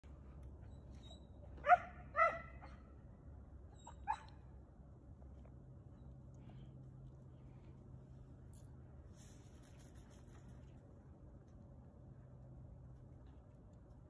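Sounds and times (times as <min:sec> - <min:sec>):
dog barking: 0:01.6 - 0:02.8.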